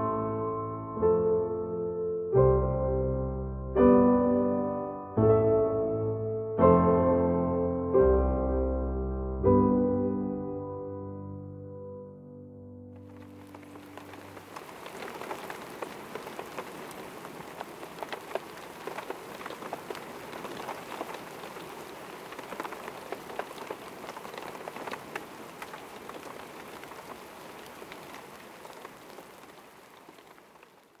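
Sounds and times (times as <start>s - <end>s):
rain falling: 13.0s - 31.0s.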